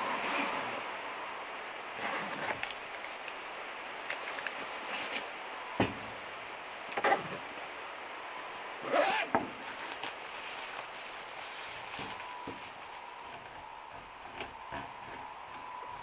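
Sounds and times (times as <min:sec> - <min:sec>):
rain on a metal roof: 0:00.0 - 0:16.0
zipper being pulled shut: 0:08.9 - 0:09.4
cooler bag rustling: 0:09.0 - 0:13.2.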